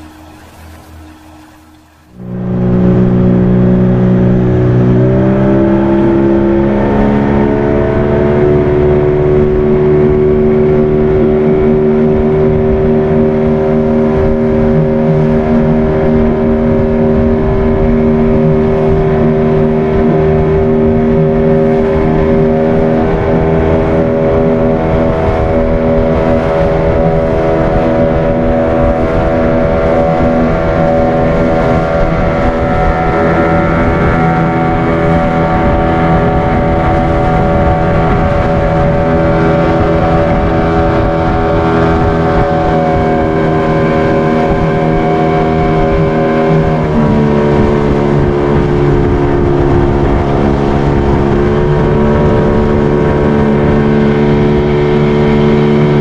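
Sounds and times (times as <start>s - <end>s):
outboard motor running: 0.0s - 56.0s.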